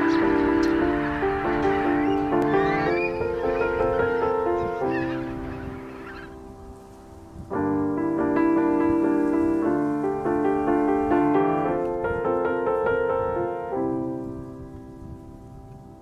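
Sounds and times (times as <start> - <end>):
slow solo piano: 0.0 - 16.0.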